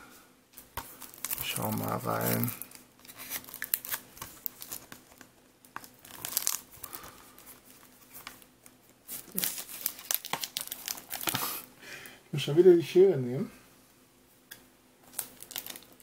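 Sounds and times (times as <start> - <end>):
plastic shrink-wrap crinkling: 0.6 - 11.7, 15.0 - 16.0.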